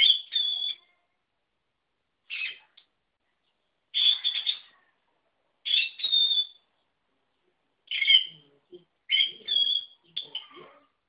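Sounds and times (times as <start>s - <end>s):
lovebird squeaky calls: 0.0s - 0.9s, 2.3s - 2.7s, 4.0s - 4.7s, 5.6s - 6.7s, 7.9s - 8.4s, 9.1s - 10.7s.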